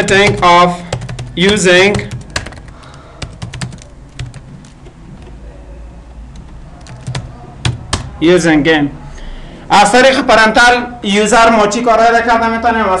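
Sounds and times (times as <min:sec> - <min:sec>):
keyboard typing: 0:00.0 - 0:05.4, 0:06.3 - 0:08.2.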